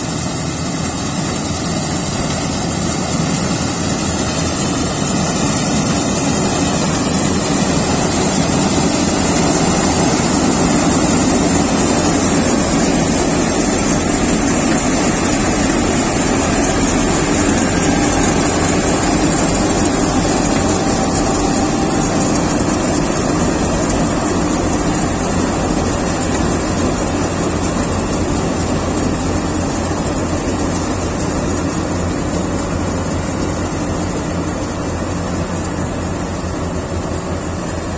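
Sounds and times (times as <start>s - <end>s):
combine harvester droning: 0.0s - 37.9s.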